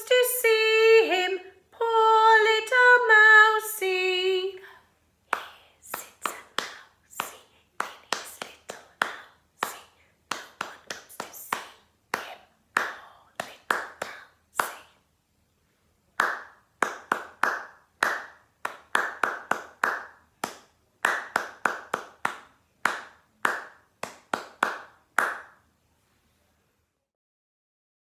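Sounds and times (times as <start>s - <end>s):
person clapping hands: 5.3s - 14.9s, 16.2s - 25.6s.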